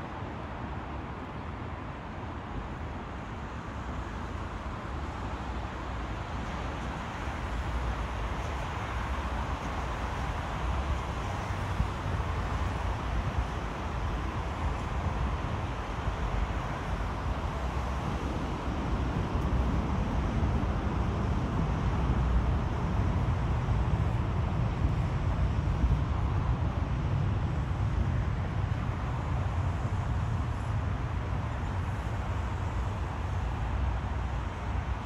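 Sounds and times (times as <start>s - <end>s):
city background noise: 0.0s - 35.0s
low rumble of trains: 0.0s - 35.0s
wind on microphone: 6.9s - 35.0s.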